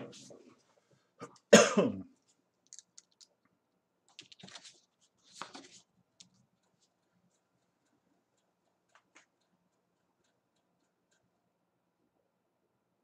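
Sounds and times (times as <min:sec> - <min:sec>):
paper clicks and rustles: 0:02.6 - 0:03.4, 0:04.1 - 0:09.3.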